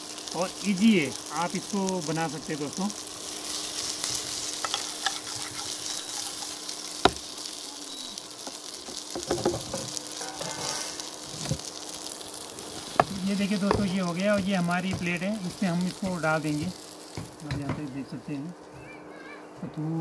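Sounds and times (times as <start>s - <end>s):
oil sizzling in a frying pan: 0.0s - 18.5s
spatula scraping pan: 3.3s - 7.1s, 9.2s - 11.6s
spatula knocking on pan: 9.0s - 9.8s, 12.9s - 15.1s.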